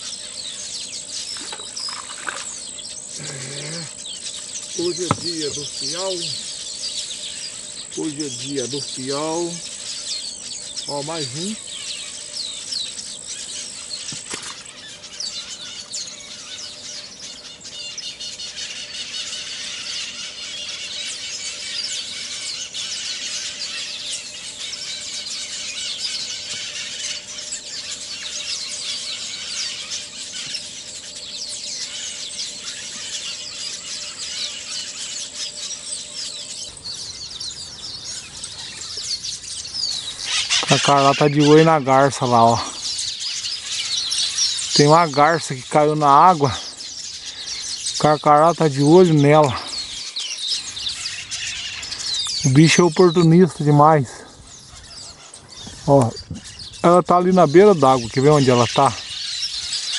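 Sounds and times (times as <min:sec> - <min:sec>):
small birds chirping: 0:00.0 - 0:59.9.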